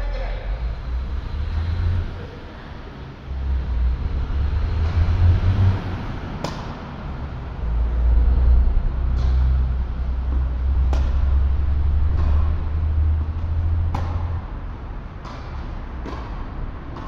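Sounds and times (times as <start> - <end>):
heavy low rumble: 0.0 - 15.2
tennis ball struck by racket: 6.3 - 7.0, 9.0 - 17.0.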